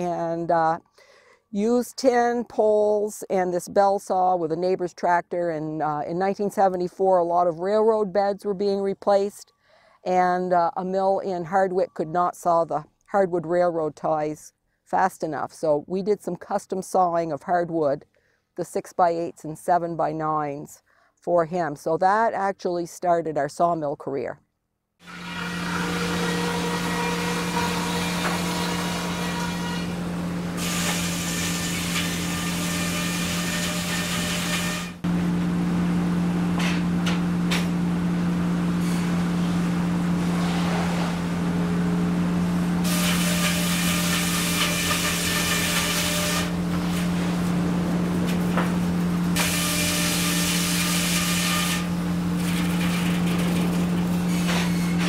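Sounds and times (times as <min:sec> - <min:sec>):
saw cutting wood whine: 0:25.0 - 0:35.4, 0:39.9 - 0:55.0
machinery motor hum: 0:35.0 - 0:43.0, 0:46.5 - 0:49.4.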